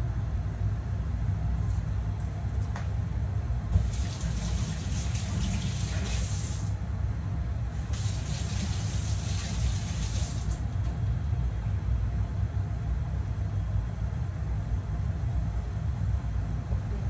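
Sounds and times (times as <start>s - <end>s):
water running: 3.7s - 6.8s, 7.8s - 10.6s.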